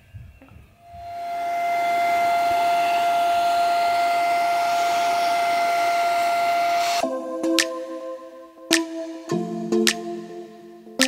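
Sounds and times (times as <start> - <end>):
vacuum cleaner running: 0.8 - 7.0.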